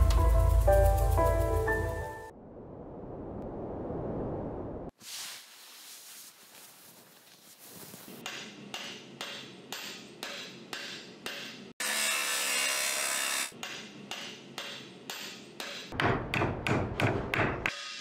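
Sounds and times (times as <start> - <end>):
hammer strikes: 8.2 - 11.8, 13.5 - 18.0
angle grinder cutting steel: 11.8 - 13.6.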